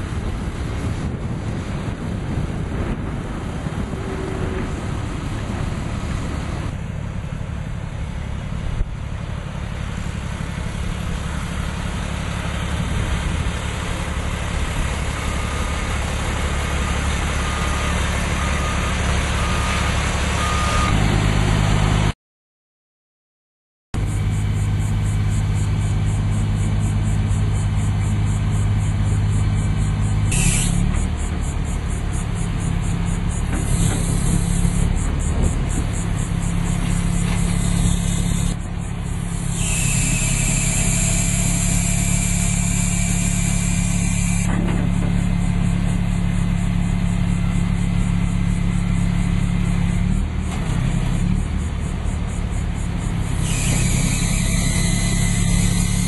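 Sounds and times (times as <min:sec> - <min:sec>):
truck engine running: 0:00.0 - 0:22.1, 0:24.0 - 0:56.0
hydraulic hiss: 0:30.3 - 0:31.0, 0:33.3 - 0:34.9, 0:36.4 - 0:45.7, 0:53.1 - 0:56.0.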